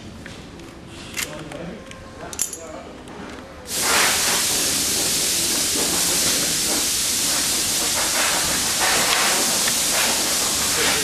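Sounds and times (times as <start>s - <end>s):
steady loud hiss: 3.7s - 11.0s.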